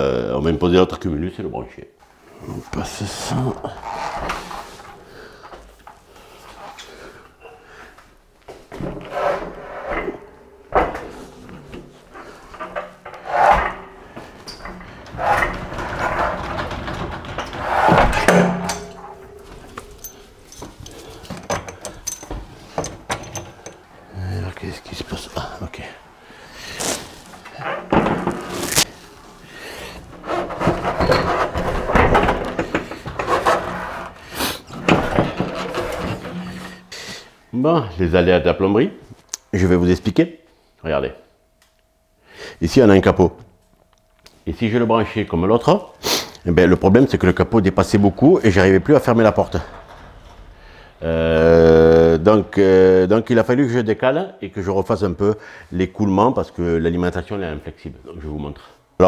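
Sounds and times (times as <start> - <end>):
tools rubbing and scraping: 2.3 - 7.7, 8.7 - 23.9, 26.7 - 37.2.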